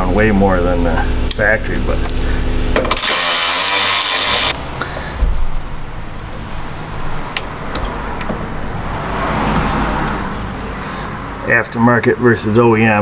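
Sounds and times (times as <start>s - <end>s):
low steady rumble: 4.5s - 13.0s.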